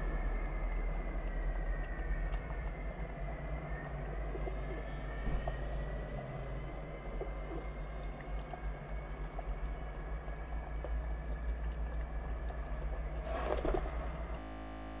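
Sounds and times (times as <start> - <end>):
low rumble of street traffic: 0.0 - 15.0.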